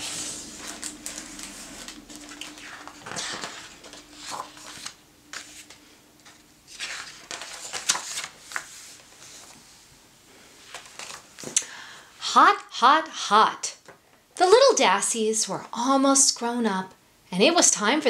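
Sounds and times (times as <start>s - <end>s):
book pages turning: 0.0s - 9.7s, 10.6s - 11.6s
paper swishes and rustles: 0.0s - 9.9s, 10.6s - 11.6s.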